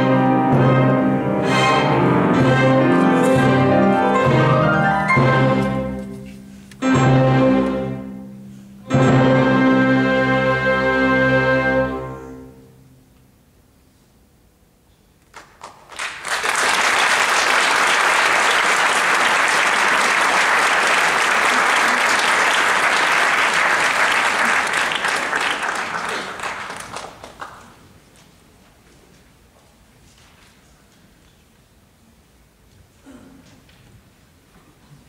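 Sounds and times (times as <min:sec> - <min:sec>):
piano and orchestra chord: 0:00.0 - 0:13.0
audience applause: 0:15.3 - 0:27.9.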